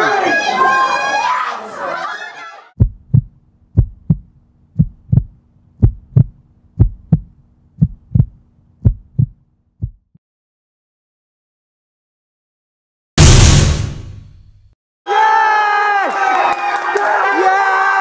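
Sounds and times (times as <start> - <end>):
heartbeat thumps: 2.8 - 10.2.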